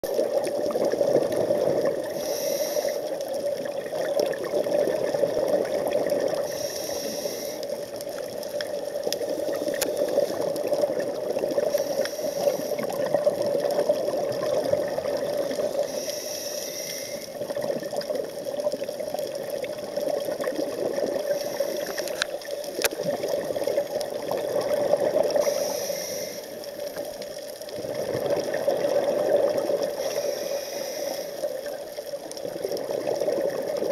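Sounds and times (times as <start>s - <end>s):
muffled underwater rush: 0.0s - 33.9s
scuba regulator hiss: 2.0s - 3.2s, 6.4s - 7.9s, 11.7s - 13.0s, 15.6s - 17.4s, 21.2s - 22.2s, 25.4s - 26.8s, 29.9s - 31.7s.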